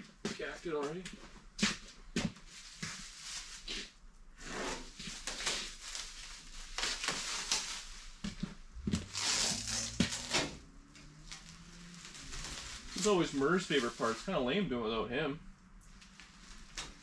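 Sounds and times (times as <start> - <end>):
plastic sheeting crinkling: 1.8 - 14.5, 15.8 - 17.0
masking tape tearing: 8.9 - 10.6.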